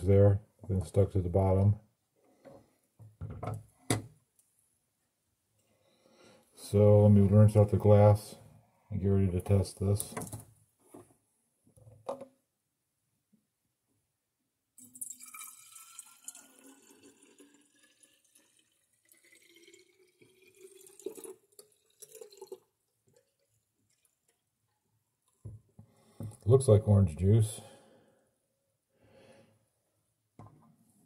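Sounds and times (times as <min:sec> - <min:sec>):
liquid pouring into a bottle: 0:14.8 - 0:24.5.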